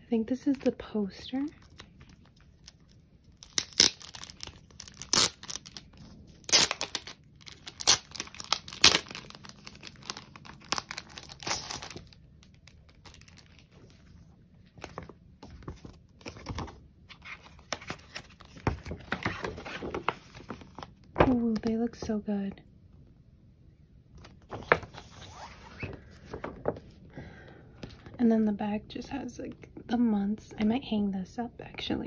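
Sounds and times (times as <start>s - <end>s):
paper poster rustling: 3.9s - 21.6s, 24.2s - 27.0s.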